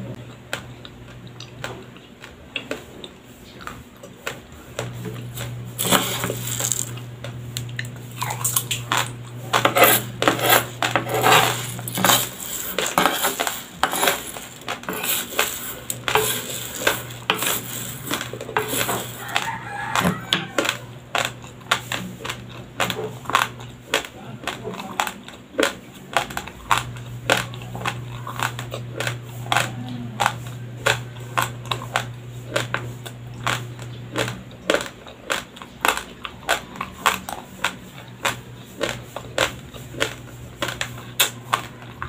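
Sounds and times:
rice grains crunching being chewed: 0.1 - 42.0
metal spoon clinking and scraping: 9.5 - 19.5.

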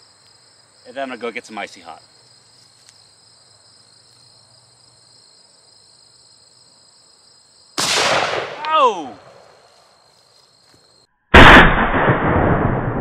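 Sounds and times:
crickets trilling: 0.0 - 11.1.

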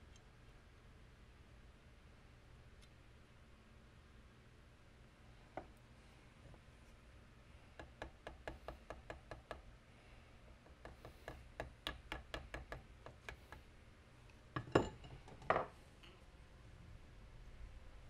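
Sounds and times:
hammer tapping steel tube: 7.8 - 9.6, 10.7 - 13.6.

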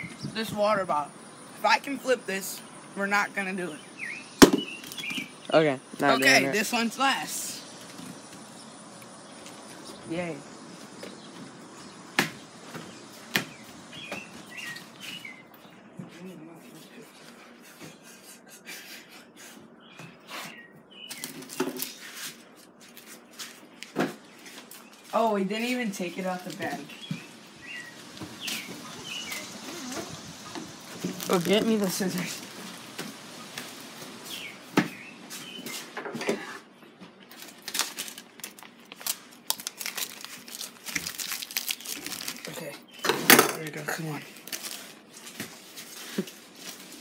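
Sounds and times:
plastic bag crinkling: 28.0 - 33.3, 37.3 - 42.7, 44.2 - 47.0.

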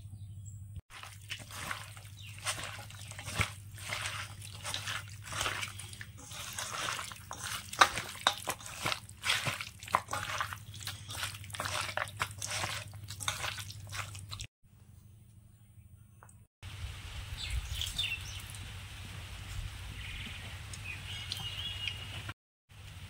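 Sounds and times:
wet food squishing: 0.9 - 14.5.

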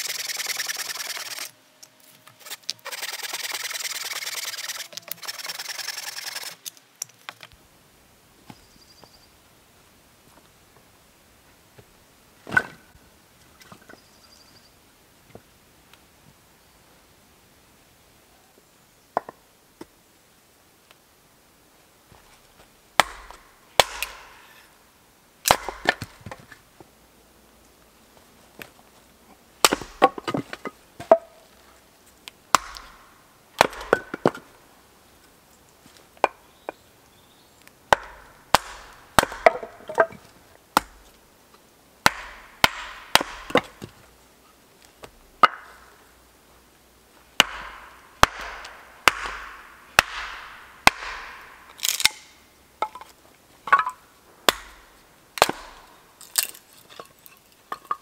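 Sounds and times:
wood splitting crackle: 0.0 - 7.6, 23.0 - 24.6, 25.4 - 26.6, 29.6 - 31.6, 32.2 - 34.6, 37.6 - 41.2, 42.0 - 44.1, 47.4 - 58.0
hatchet chopping wood: 23.0 - 24.5, 25.4 - 26.4, 29.6 - 31.4, 32.5 - 34.5, 37.9 - 40.2, 40.8 - 41.1, 42.0 - 44.0, 45.0 - 45.9, 47.4 - 52.3, 53.7 - 56.6.

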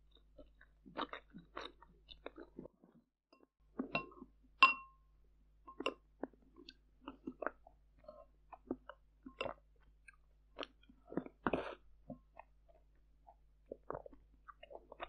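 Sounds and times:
mouth clicks and chewing: 0.1 - 2.9, 5.7 - 15.0
spoon scooping in glass bowl: 3.9 - 5.0
slurping: 8.2 - 12.5.

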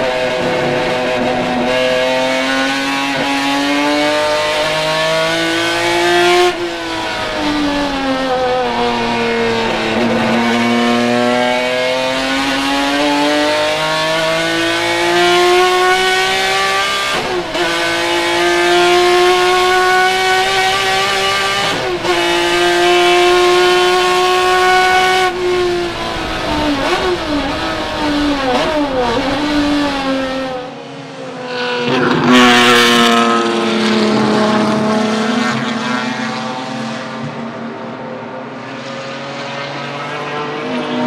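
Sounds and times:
race car engine revving: 0.0 - 41.0.

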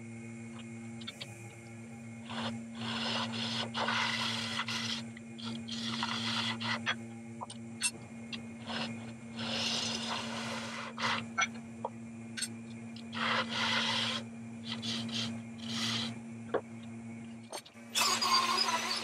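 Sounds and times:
wood lathe motor hum: 0.0 - 19.0
gouge scraping wood: 2.2 - 7.0, 8.6 - 11.6, 13.1 - 16.2.

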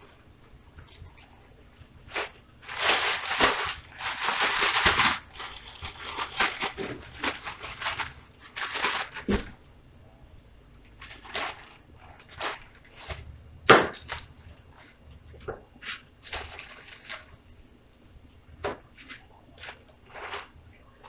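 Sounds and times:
plastic bag crinkling: 2.0 - 9.6, 10.9 - 13.2, 15.8 - 17.5, 18.9 - 21.0.

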